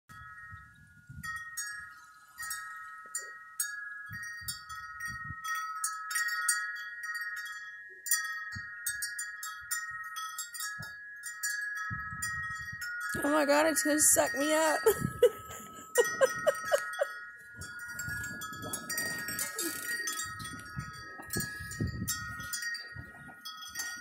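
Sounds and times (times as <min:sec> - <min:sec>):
wind rumbling on microphone: 0:00.1 - 0:03.4, 0:04.0 - 0:05.8, 0:11.7 - 0:24.0
wind chimes ringing: 0:00.1 - 0:24.0.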